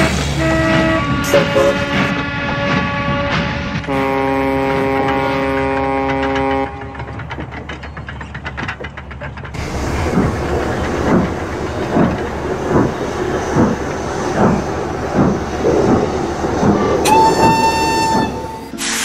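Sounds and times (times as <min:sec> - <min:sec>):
steam locomotive exhaust chuffing: 0:00.0 - 0:19.0
steam whistle: 0:17.0 - 0:19.0.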